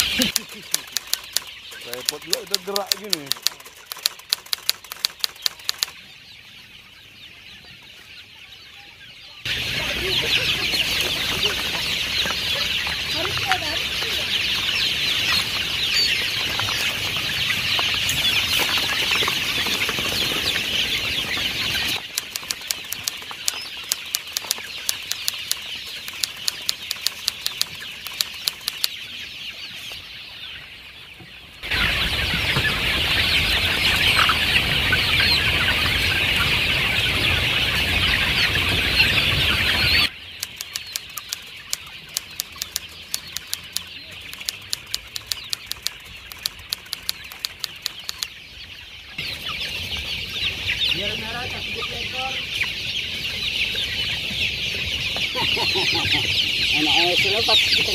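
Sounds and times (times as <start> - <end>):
sharp irregular clicks: 0.0 - 6.0, 22.0 - 29.0, 40.4 - 48.4
chicks peeping and clucking: 0.0 - 57.9.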